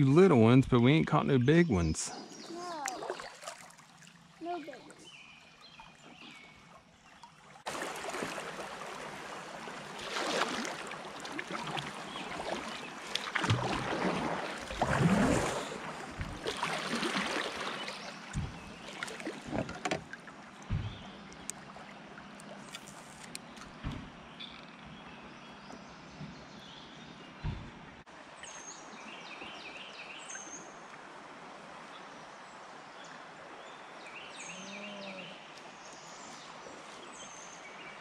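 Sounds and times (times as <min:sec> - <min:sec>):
water rushing along kayak hull: 0:01.6 - 0:26.6
knocks on kayak hull: 0:18.3 - 0:20.1.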